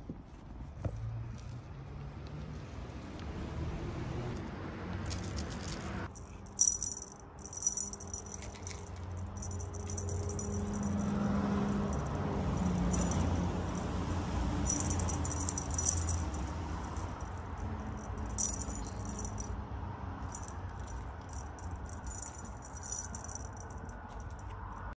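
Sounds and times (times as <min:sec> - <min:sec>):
cat toys rattling and jingling: 0:05.0 - 0:24.9.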